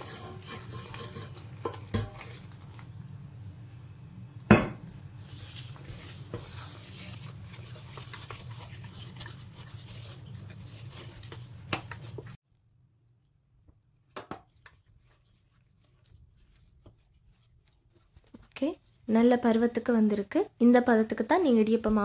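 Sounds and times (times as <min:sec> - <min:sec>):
spoon scraping steel bowl: 0:00.0 - 0:02.9.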